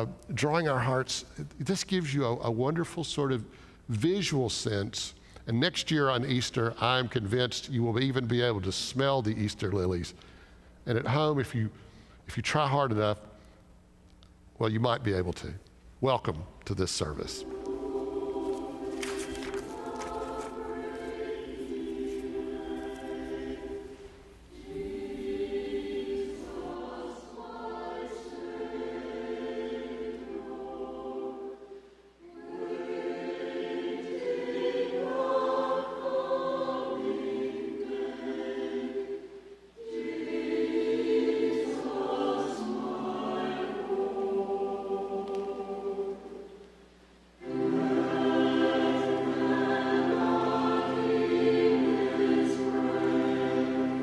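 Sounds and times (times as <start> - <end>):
choir singing church music: 16.8 - 54.0.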